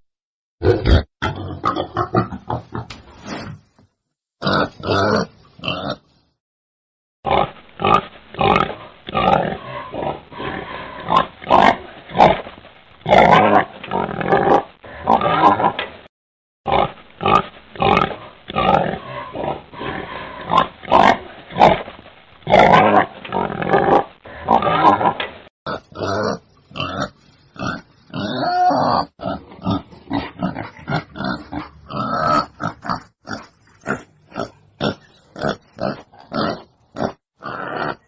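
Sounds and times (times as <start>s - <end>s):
wild boar grunting: 16.7s - 38.0s.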